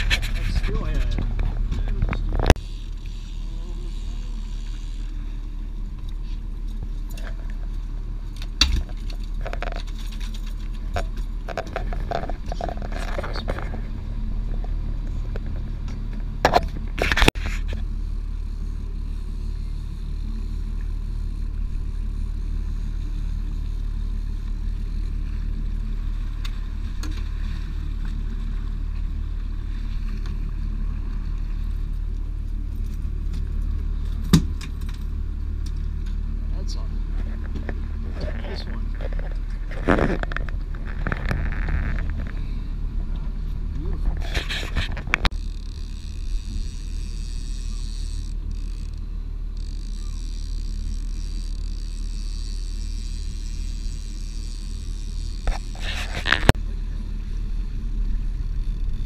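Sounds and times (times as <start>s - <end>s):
boat engine droning: 0.0s - 59.0s
gear knocking and rattling: 37.1s - 42.5s.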